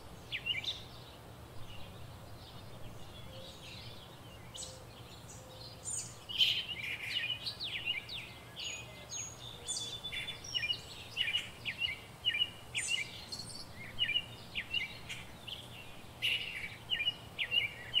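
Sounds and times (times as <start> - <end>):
small birds chirping: 0.0 - 18.0.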